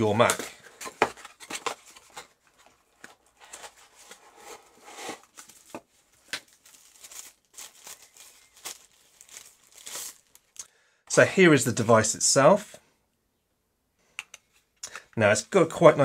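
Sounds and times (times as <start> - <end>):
plastic wrap crinkling: 5.2 - 10.6.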